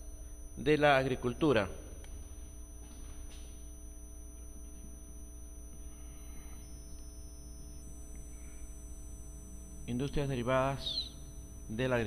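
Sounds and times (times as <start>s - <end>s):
electrical mains hum: 0.0s - 12.0s
thin whining tones: 4.2s - 12.0s.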